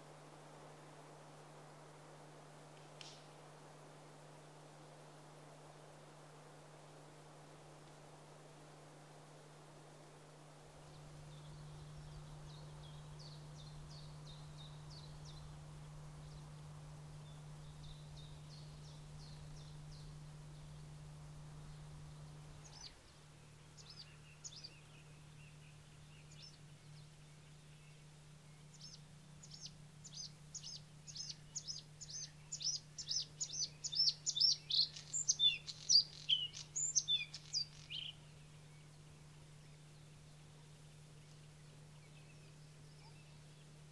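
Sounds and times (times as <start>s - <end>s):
steady low hum: 0.0s - 43.9s
bird singing: 10.8s - 43.9s
faint high bird calls: 22.5s - 43.8s.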